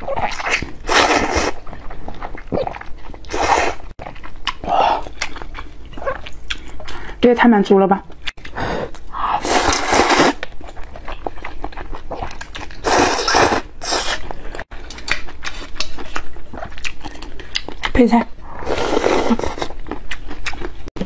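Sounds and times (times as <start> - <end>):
wet chewing: 0.0 - 7.2, 8.1 - 21.0
noodle slurping: 0.5 - 1.6, 2.6 - 3.9, 9.2 - 10.4, 12.8 - 14.4.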